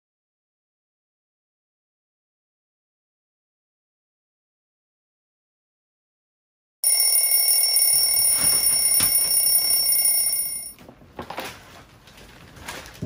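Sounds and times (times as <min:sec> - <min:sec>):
alarm clock ringing: 0:06.8 - 0:10.8.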